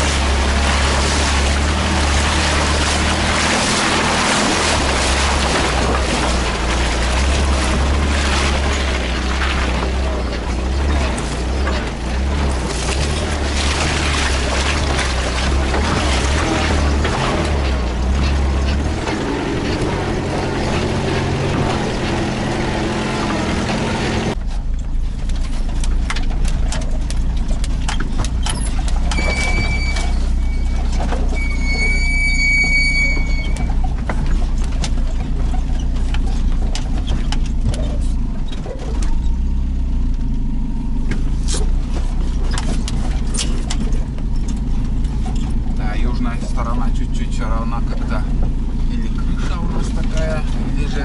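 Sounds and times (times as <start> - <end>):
knocks and rattles: 0.0 - 39.4, 41.1 - 51.0
vehicle engine drone: 0.0 - 51.0
high squeak: 28.4 - 34.5.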